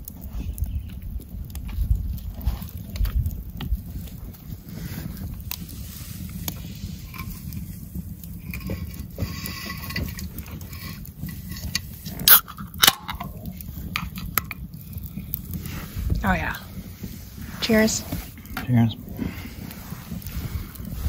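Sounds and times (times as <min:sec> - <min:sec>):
beer cans cracking open: 0:07.1 - 0:15.6.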